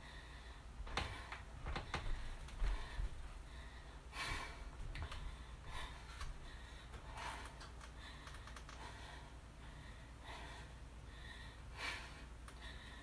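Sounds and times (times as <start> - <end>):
person breathing hard: 0.0 - 13.0
steady low hum: 0.0 - 13.0
faint clicks: 6.2 - 8.9.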